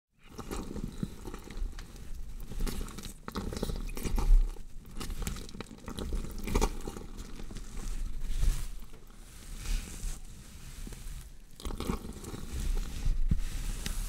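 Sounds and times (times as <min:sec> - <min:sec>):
crunching and tearing flesh: 0:00.3 - 0:09.2.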